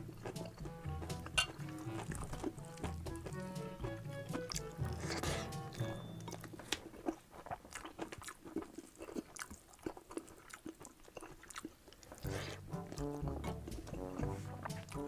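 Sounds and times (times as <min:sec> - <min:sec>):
background music: 0:00.0 - 0:06.6, 0:12.2 - 0:15.0
person chewing food: 0:00.0 - 0:15.0.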